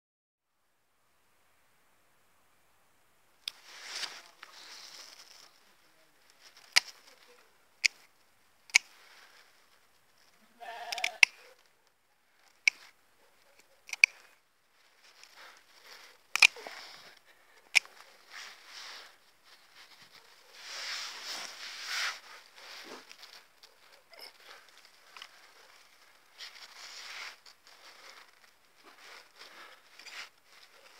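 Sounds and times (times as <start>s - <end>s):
branches and leaves rustling: 3.4s - 30.9s
pruning shears snipping: 16.4s - 16.9s.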